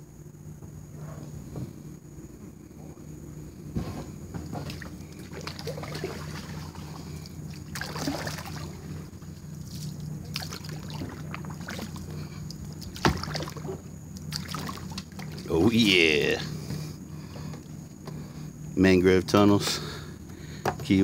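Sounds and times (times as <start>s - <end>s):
paddle strokes splashing: 4.6s - 15.7s.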